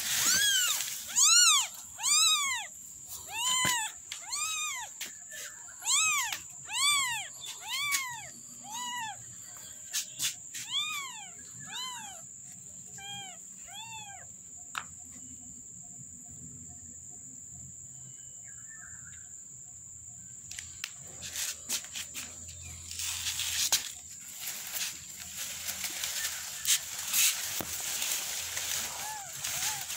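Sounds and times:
high insect trill: 0.0 - 29.9
kitten mewing: 0.2 - 5.0, 5.8 - 9.2.

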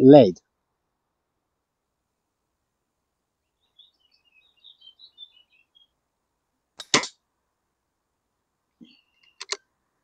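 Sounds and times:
small birds chirping: 3.3 - 6.1, 8.7 - 10.0.

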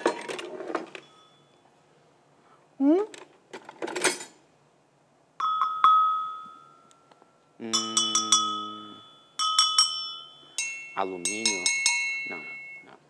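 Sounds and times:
metal bells clanging: 5.4 - 7.1, 7.7 - 13.0.

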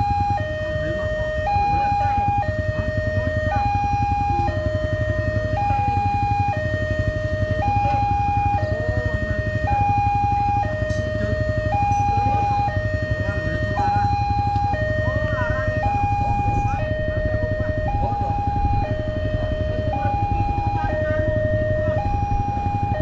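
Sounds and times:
two-tone crossing alarm: 0.0 - 23.0.

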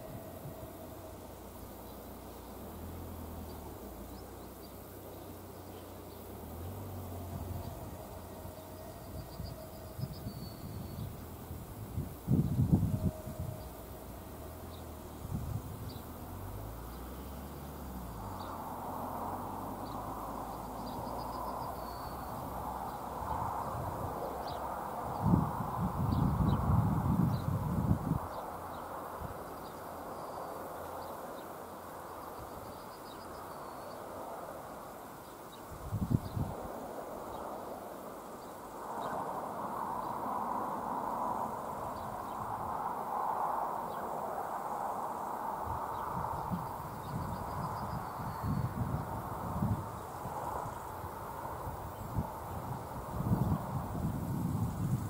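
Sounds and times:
faint bird chirps: 0.0 - 11.6, 12.3 - 23.3
faint background hiss: 0.0 - 55.0.

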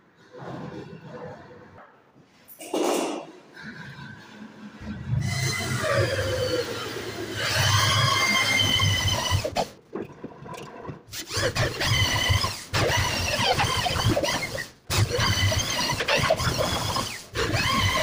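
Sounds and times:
electric drill whining into wood: 5.4 - 9.7, 11.2 - 18.0.

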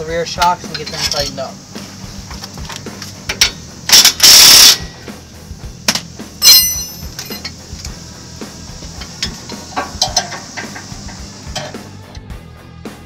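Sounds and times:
ringing whine: 0.0 - 5.5, 6.4 - 12.0
impact wrench hammering: 3.3 - 5.0, 5.8 - 8.0, 8.8 - 12.0.

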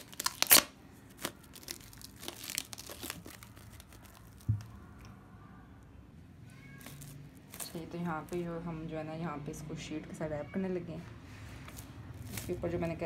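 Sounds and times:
cling film crinkling: 0.0 - 5.0, 6.8 - 8.6, 11.6 - 13.0.

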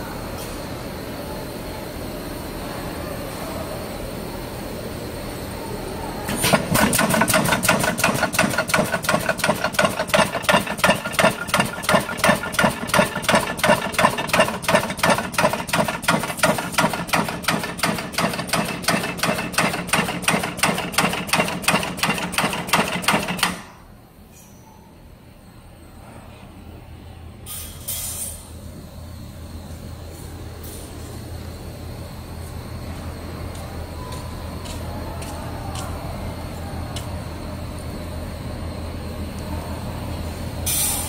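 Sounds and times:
welding machine hum: 6.3 - 23.7
welding machine sharp clacks: 6.3 - 23.7.

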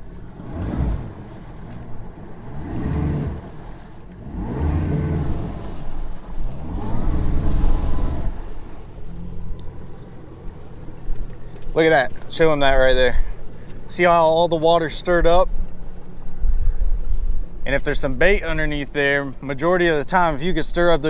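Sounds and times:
outboard motor revving: 0.0 - 16.3
propeller churning water: 0.0 - 21.0.

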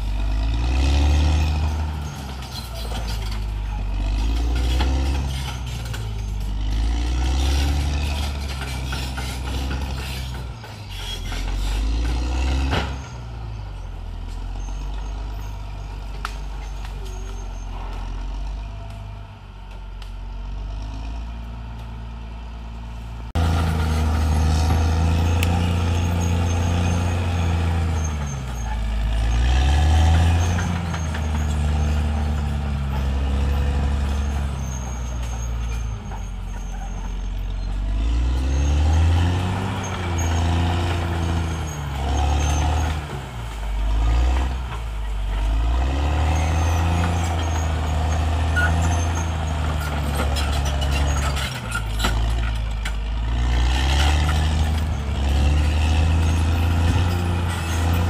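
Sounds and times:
bulldozer diesel engine revving: 0.0 - 58.0.

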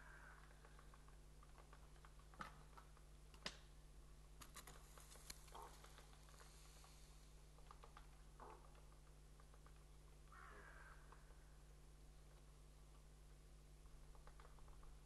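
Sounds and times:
low electrical hum: 0.0 - 15.0
faint sharp clicks: 4.4 - 7.0.

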